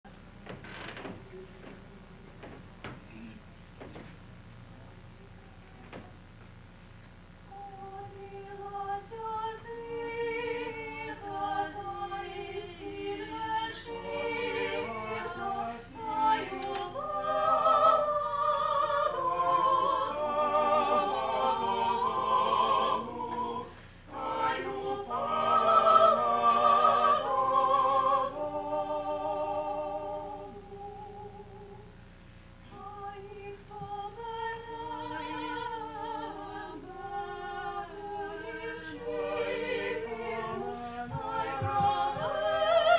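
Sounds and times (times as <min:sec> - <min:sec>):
men and women singing in harmony: 0:07.5 - 0:31.9, 0:32.7 - 0:42.9.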